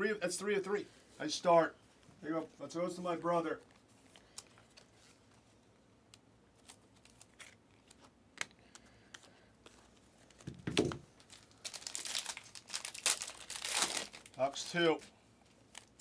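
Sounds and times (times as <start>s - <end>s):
card packaging clicks and rustles: 6.6s - 16.0s.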